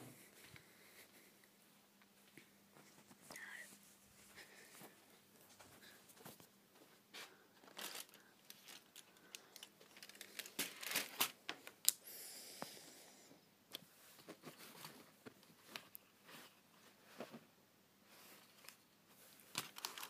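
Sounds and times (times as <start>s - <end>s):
plastic wrapping crinkling: 7.6s - 12.0s, 18.3s - 20.0s.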